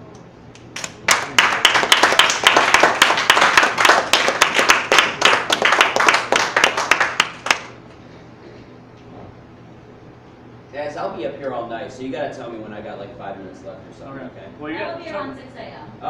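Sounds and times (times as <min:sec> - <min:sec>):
audience applauding: 0:00.7 - 0:07.8.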